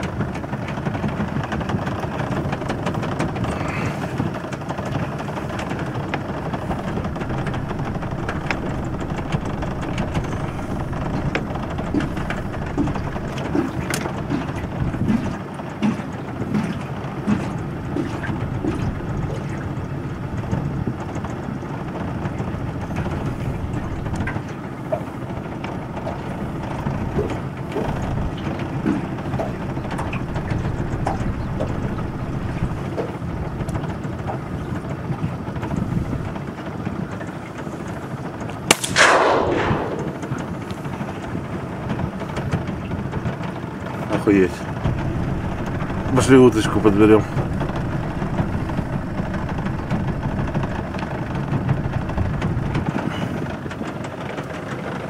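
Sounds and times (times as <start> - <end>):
steady low rumble: 2.2 - 36.8, 38.6 - 54.3
shotgun shot: 38.7 - 40.5.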